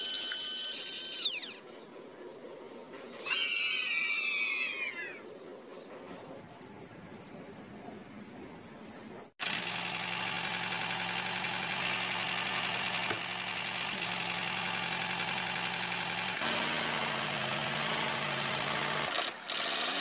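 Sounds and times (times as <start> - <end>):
small motor humming: 0.0 - 1.6, 9.0 - 20.0.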